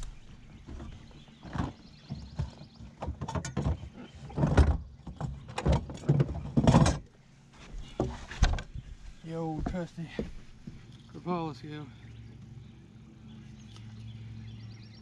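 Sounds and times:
knocks and thumps on boat: 0.5 - 7.0.

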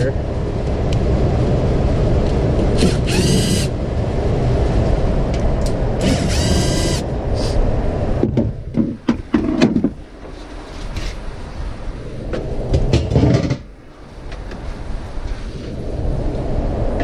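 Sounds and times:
power screwdriver whining: 2.8 - 3.7, 6.0 - 7.6
furnace blower rushing: 6.0 - 7.6.

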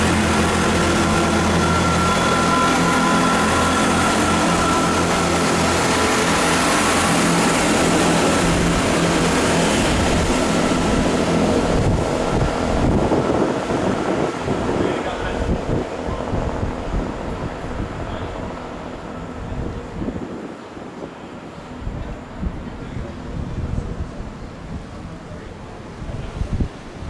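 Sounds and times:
diesel train engine whine: 0.0 - 27.0
wheel and rail noise: 0.0 - 27.0.

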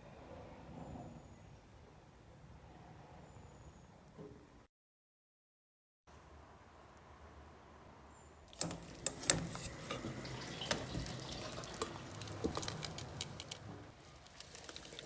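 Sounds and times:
water boiling: 8.5 - 15.0.

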